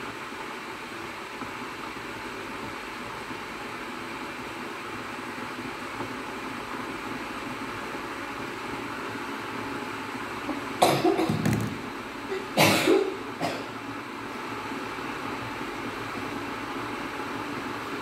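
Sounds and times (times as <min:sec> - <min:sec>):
ventilation fan hum: 0:00.0 - 0:18.0
woman coughing: 0:10.8 - 0:11.4, 0:12.3 - 0:13.7.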